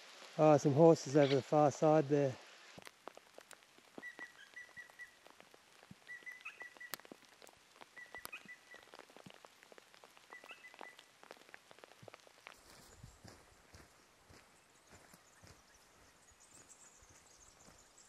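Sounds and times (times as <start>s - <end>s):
light rain patter: 0.0s - 18.0s
frog calling with high pips: 4.0s - 5.2s, 6.0s - 7.1s, 7.9s - 8.8s, 10.3s - 11.0s.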